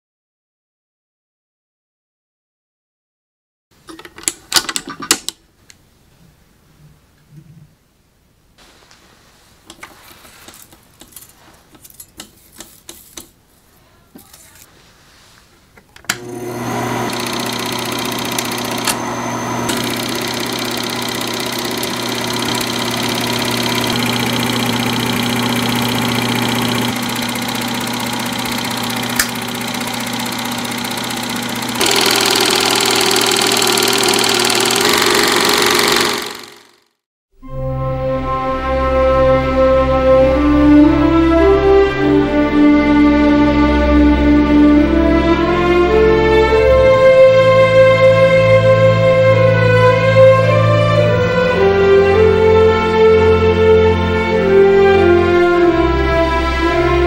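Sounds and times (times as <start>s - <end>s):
film projector whirring: 16.1s - 37.0s.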